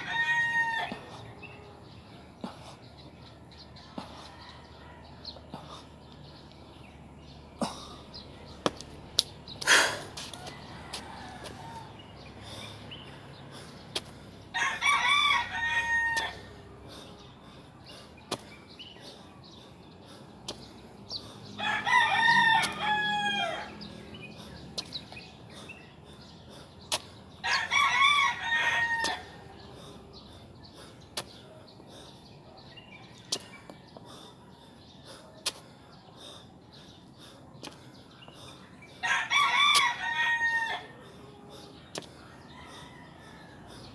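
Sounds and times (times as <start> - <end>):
rooster crowing: 14.6 - 16.4, 21.6 - 23.8, 27.4 - 29.3, 39.0 - 40.9.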